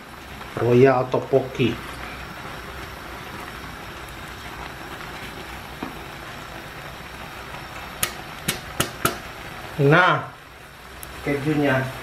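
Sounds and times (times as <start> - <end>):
sauce sizzling in frying pan: 0.0 - 12.0
sharp taps: 8.0 - 9.2.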